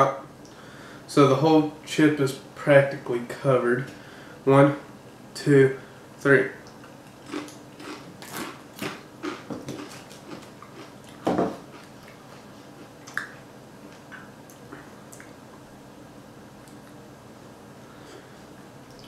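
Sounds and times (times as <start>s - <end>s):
faint chewing clicks: 6.6s - 15.6s
crunching a chip: 7.1s - 12.2s.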